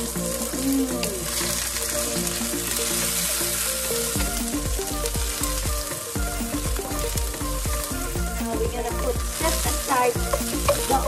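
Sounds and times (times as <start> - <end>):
background music: 0.0 - 11.0
onions sizzling in oil: 0.0 - 11.0
spatula scraping wok: 9.3 - 11.0.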